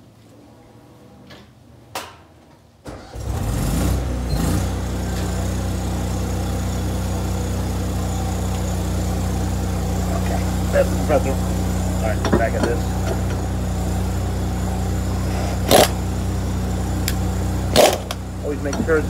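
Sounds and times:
air compressor running: 3.0 - 19.0.

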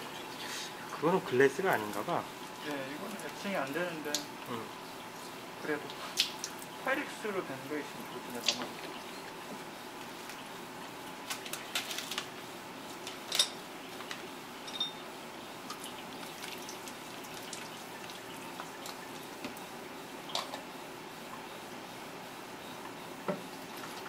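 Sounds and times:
water dripping: 0.0 - 6.8, 15.6 - 19.7
low background hum: 0.0 - 24.0
glass jars clinking: 14.6 - 15.0.

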